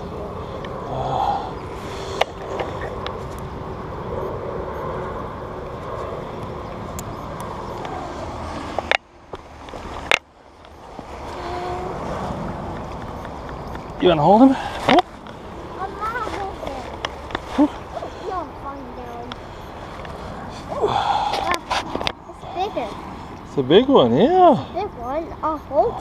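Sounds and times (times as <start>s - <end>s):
clothing rustle: 16.1s - 18.1s.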